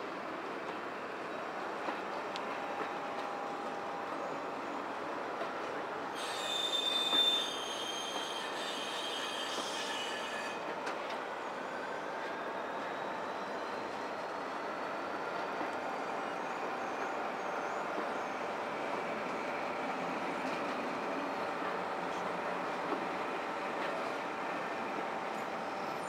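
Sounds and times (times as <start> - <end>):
train wheels rumbling on rails: 0.0 - 26.0
metallic wheel squeal: 6.2 - 10.6.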